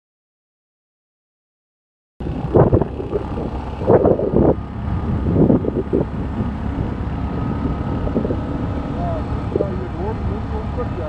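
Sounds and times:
muffled bursts: 2.2s - 4.6s, 5.2s - 11.0s
wind buffeting microphone: 2.2s - 11.0s.

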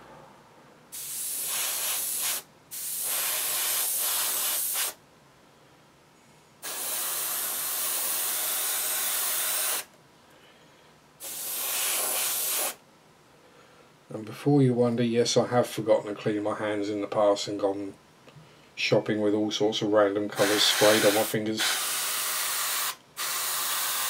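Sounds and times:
airbrush spraying hiss: 0.9s - 5.0s, 6.6s - 9.9s, 11.2s - 12.8s, 20.4s - 24.0s.

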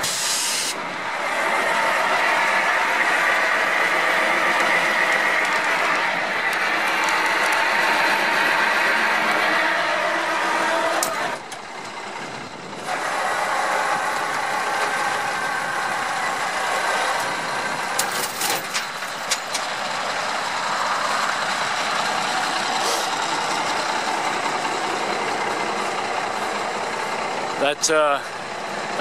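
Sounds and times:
truck engine running: 0.0s - 29.0s
winch hauling: 0.0s - 29.0s
metallic clicks and clanks: 18.0s - 19.7s.

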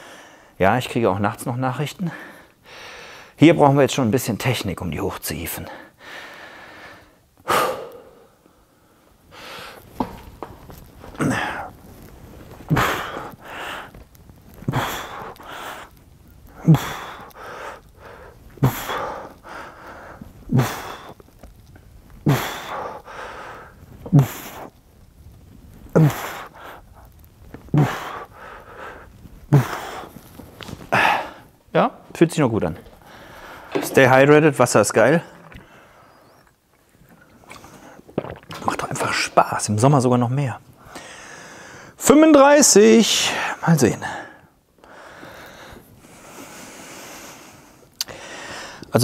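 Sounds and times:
man exhaling forcefully: 7.5s - 8.4s, 22.2s - 23.0s.

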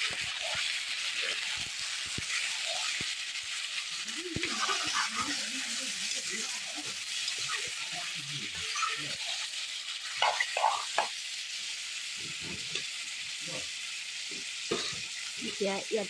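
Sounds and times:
meat sizzling in hot oil: 0.0s - 16.0s.

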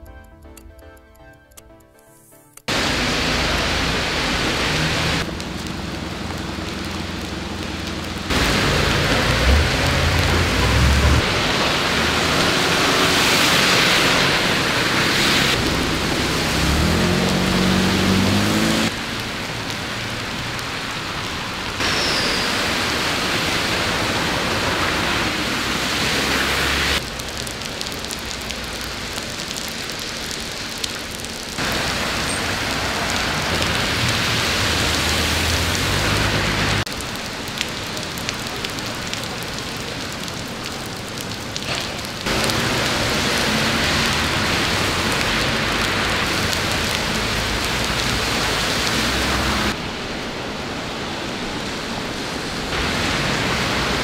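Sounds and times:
car engine rising in pitch: 2.7s - 19.2s
car driving through deep water: 2.7s - 54.0s
heavy rain on pavement: 2.7s - 54.0s.

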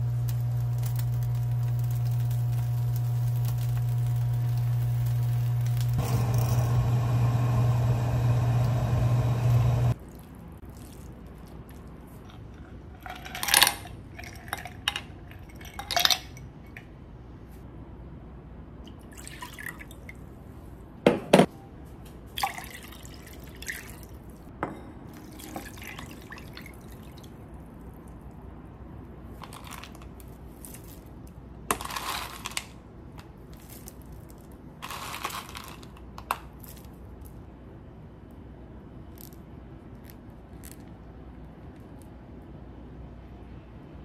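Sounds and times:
liquid pouring and dripping: 9.9s - 12.4s, 18.9s - 20.2s, 22.3s - 24.4s, 25.1s - 28.2s.

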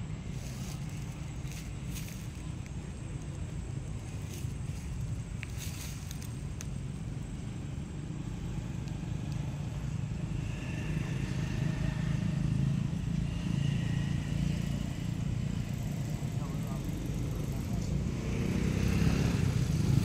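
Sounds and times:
motor vehicle engine rumble: 0.0s - 20.0s.

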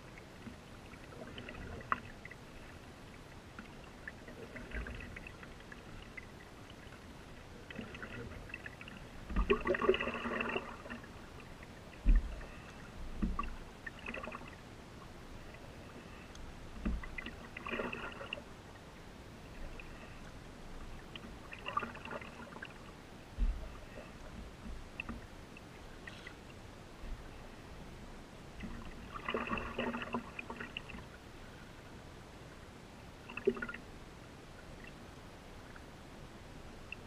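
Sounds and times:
paddle splashing through water: 7.6s - 14.6s, 28.6s - 31.1s
paddle knocking against hull: 12.0s - 12.4s, 13.1s - 13.6s.

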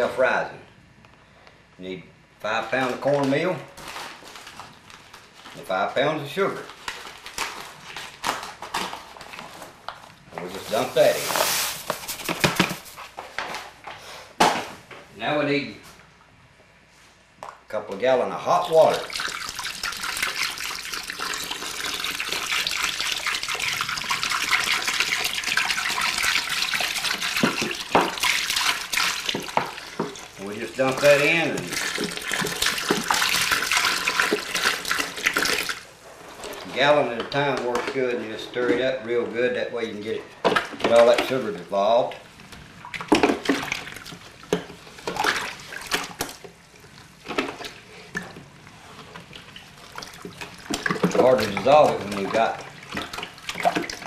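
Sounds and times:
stick stirring sloshing mash: 10.3s - 13.1s, 18.8s - 54.0s
water pouring into a cooler: 18.5s - 38.1s, 42.8s - 48.4s, 49.1s - 54.0s.

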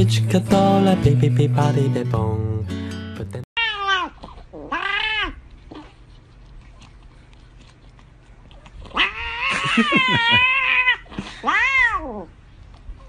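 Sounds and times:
cat yowling: 3.6s - 5.4s, 8.9s - 12.3s.

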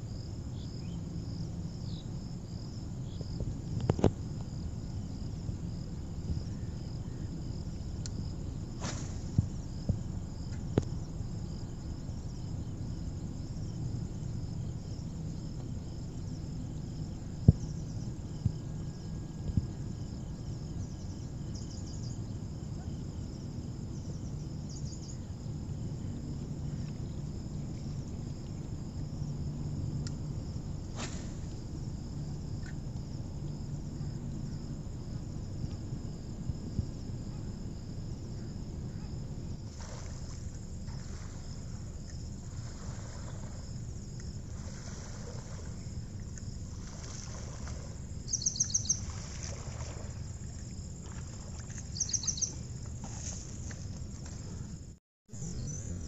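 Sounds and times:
insects buzzing: 0.0s - 56.0s
low outdoor rumble: 0.0s - 56.0s
insect pulsing trills: 38.4s - 56.0s.

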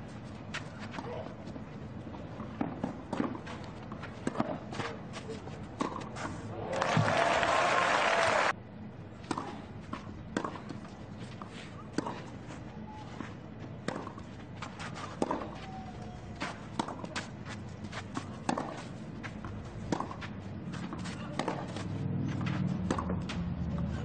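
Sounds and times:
racket striking tennis ball: 2.6s - 5.0s, 5.8s - 6.3s, 11.8s - 12.3s, 13.8s - 15.6s, 16.4s - 23.5s
footsteps on clay: 9.8s - 23.7s
tennis ball bouncing on clay: 13.8s - 15.6s, 16.5s - 17.4s, 18.0s - 23.9s.

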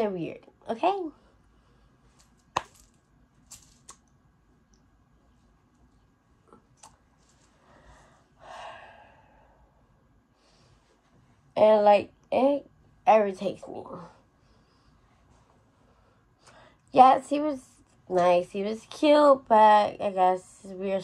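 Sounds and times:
breathy exhale: 7.6s - 9.7s.

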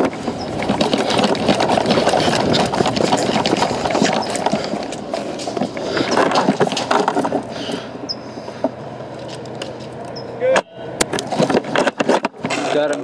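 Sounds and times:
footsteps crunching on dry dirt: 0.0s - 7.5s
gear rattling: 0.0s - 7.6s.

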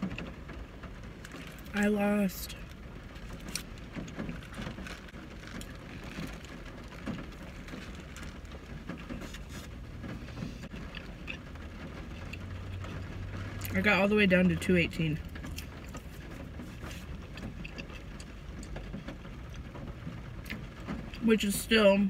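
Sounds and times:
paper wrapper crinkling: 3.2s - 9.8s
person chewing a burger: 3.2s - 13.7s, 15.2s - 19.8s.

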